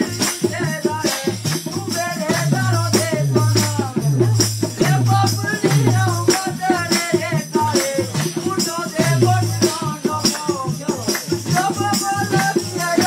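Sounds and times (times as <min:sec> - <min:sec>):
deep drum beats: 0:00.0 - 0:13.0
shaker rattle: 0:00.0 - 0:13.0.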